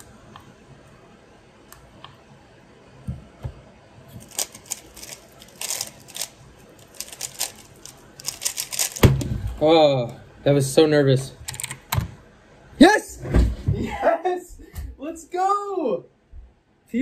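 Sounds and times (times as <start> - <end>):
rapid plastic clicking of speed cube: 4.3 - 9.1.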